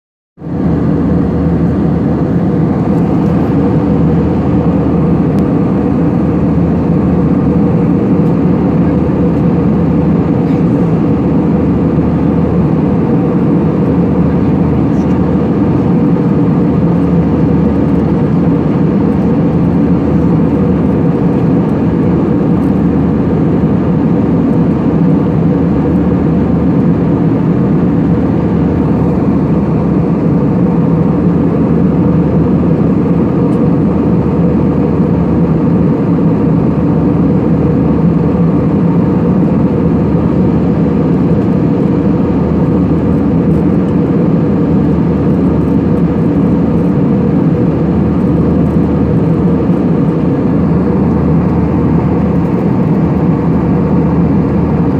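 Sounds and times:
aircraft cabin engine drone: 0.4s - 54.9s.

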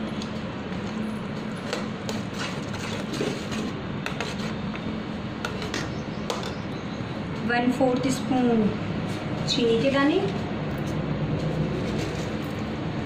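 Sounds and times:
spoon scraping against pan: 2.1s - 4.6s.

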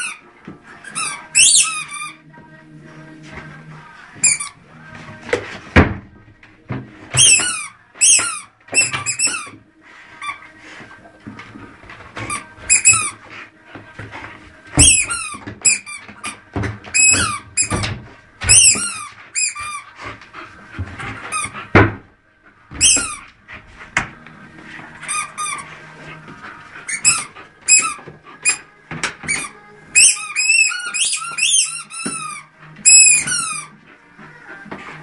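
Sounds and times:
dog toy squeaking: 0.0s - 0.2s, 0.8s - 2.3s, 4.2s - 4.6s, 7.1s - 9.5s, 12.2s - 13.2s, 14.8s - 19.9s, 22.8s - 23.3s, 25.0s - 25.7s, 26.8s - 33.8s
dull thumps: 13.8s - 19.1s.

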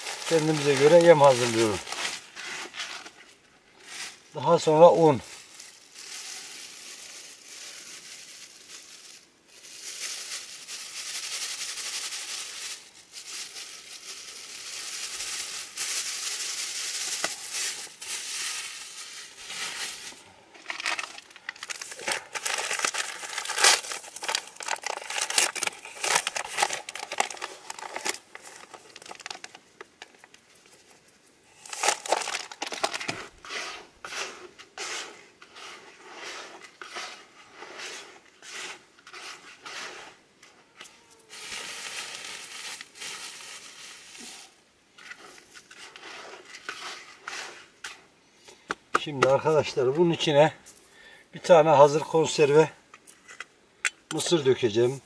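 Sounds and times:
plastic bag crinkling: 0.0s - 30.9s, 31.5s - 33.4s, 41.0s - 46.0s
dry feed crackling as stirred: 0.0s - 48.1s.

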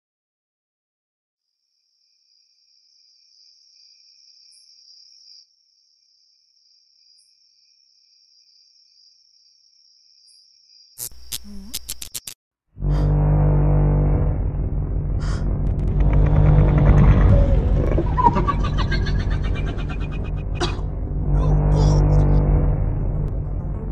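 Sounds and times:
crickets chirring: 1.8s - 12.4s
sharp loud clicks with rumble: 13.1s - 23.9s.

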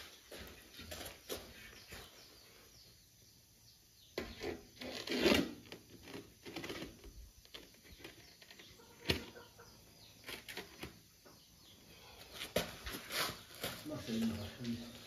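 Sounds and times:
scraping rustle: 4.2s - 9.3s, 12.2s - 15.0s.

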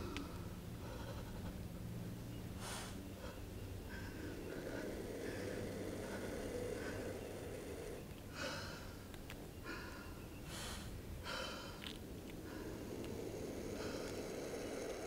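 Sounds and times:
steady low rumble: 0.0s - 15.0s
raspy breath-like bursts: 2.6s - 15.0s.

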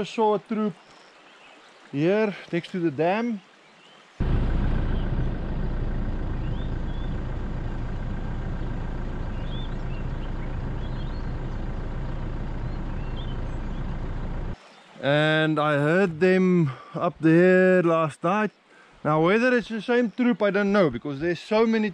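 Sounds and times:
engine running at low revs: 4.2s - 14.6s.

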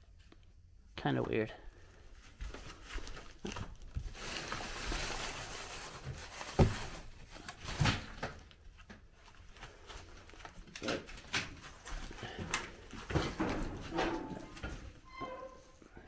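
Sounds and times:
newspapers rustling: 1.8s - 13.9s.

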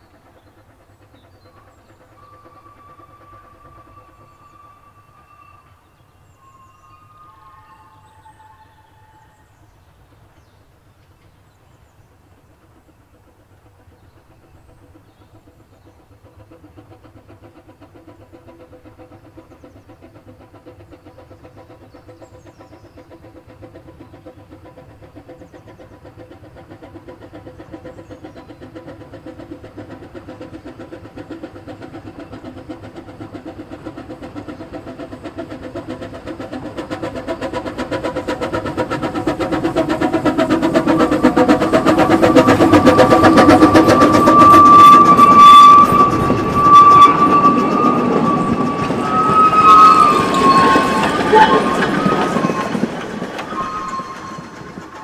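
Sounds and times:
steam locomotive approaching: 0.0s - 55.0s
faint bird chirps: 1.1s - 12.0s.

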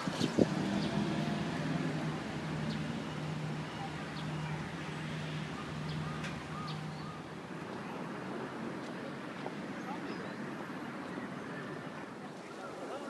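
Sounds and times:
background noise: 0.0s - 13.0s
short bird calls: 2.8s - 7.3s.

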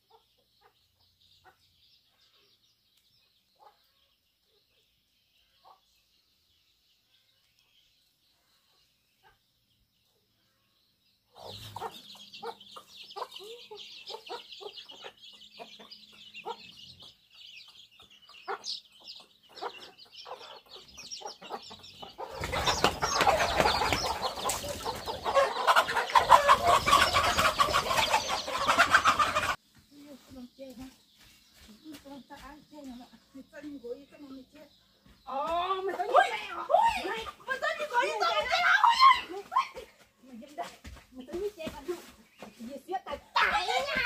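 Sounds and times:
chickens clucking: 0.0s - 2.6s, 3.4s - 4.8s, 11.2s - 44.0s.

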